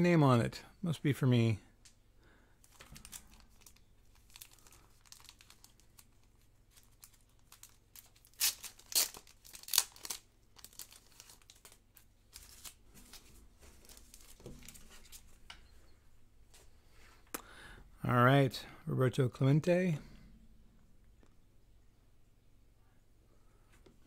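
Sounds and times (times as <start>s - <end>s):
plastic wrap ripping: 2.6s - 12.8s
plastic wrap crinkling: 2.6s - 15.4s.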